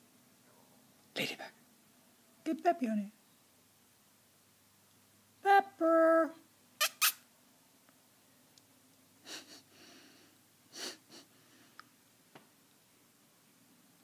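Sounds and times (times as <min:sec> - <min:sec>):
sharp nasal snorts: 0:06.8 - 0:07.2.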